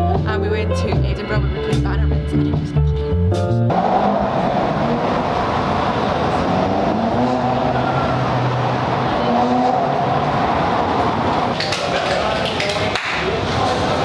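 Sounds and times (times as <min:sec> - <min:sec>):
motor vehicle rush: 0:03.7 - 0:14.0.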